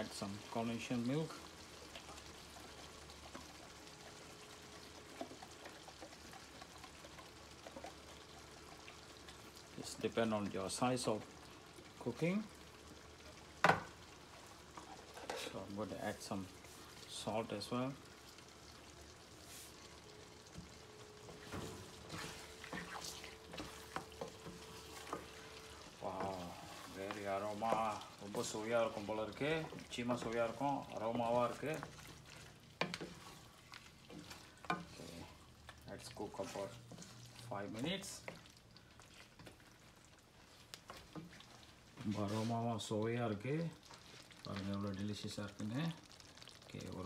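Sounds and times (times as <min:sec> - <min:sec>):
faint pan sizzling: 0:00.0 - 0:47.0
spatula scraping pan: 0:21.2 - 0:39.7.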